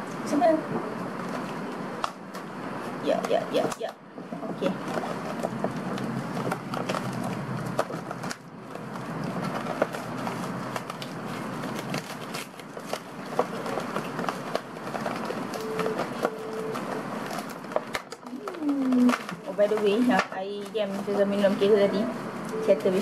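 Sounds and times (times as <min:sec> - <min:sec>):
plastic packaging crinkling: 0:04.7 - 0:21.6.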